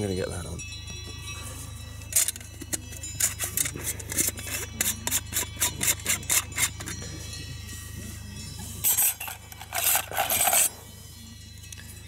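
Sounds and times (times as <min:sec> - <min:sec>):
metal pans clinking and scraping: 0:02.1 - 0:07.1, 0:08.8 - 0:10.8.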